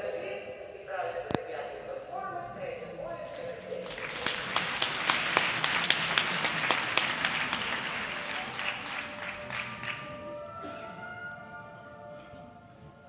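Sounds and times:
audience applauding: 3.6 - 10.6
loud close claps: 3.8 - 10.2
music: 4.2 - 13.0.

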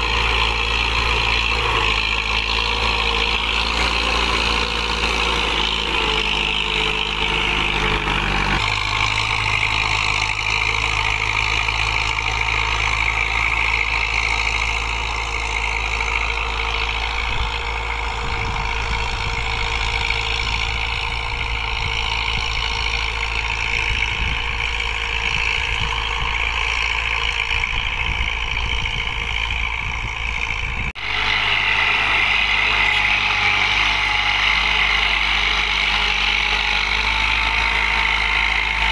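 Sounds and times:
tractor diesel engine under load: 0.0 - 38.9.

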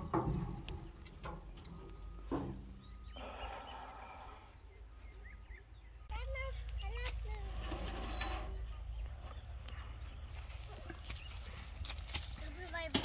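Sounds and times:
small birds chirping faintly: 0.7 - 7.4.

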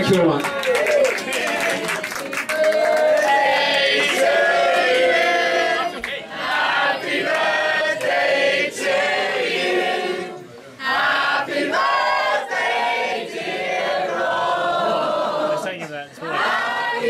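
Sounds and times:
crowd laughing and talking: 14.6 - 16.5.

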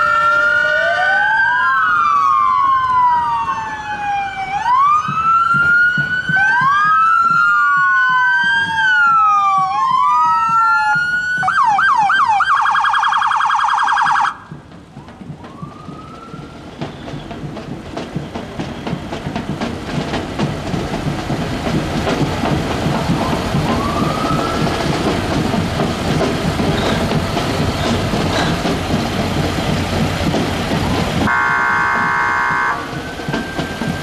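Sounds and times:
rising siren whoop: 0.0 - 14.6, 15.4 - 16.8, 23.2 - 24.9
police sirens wailing and yelping: 0.0 - 17.6, 22.0 - 29.0, 30.9 - 34.0
engine rumble: 14.4 - 34.0.

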